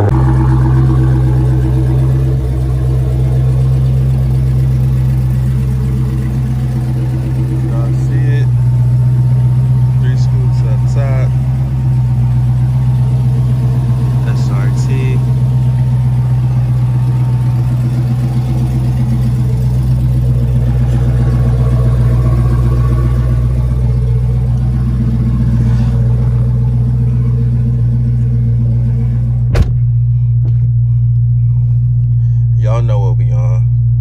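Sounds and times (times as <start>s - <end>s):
car engine idling: 0.0s - 34.0s
sharp thud: 29.4s - 30.6s.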